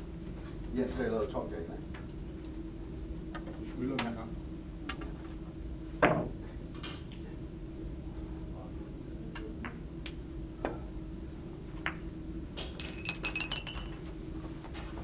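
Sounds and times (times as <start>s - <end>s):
billiard balls clicking: 12.6s - 14.1s.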